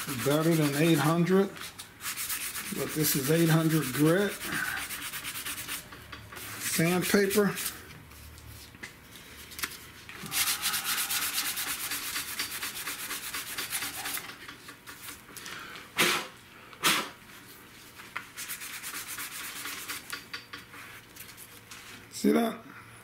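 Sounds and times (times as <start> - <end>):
sandpaper rasping by hand: 0.0 - 1.4, 2.0 - 5.9, 10.3 - 14.2, 18.4 - 20.1.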